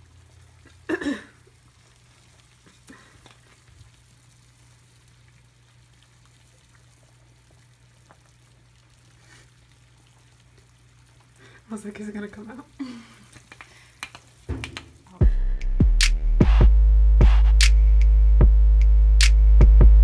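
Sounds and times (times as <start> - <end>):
water hissing near boil: 0.0 - 15.2.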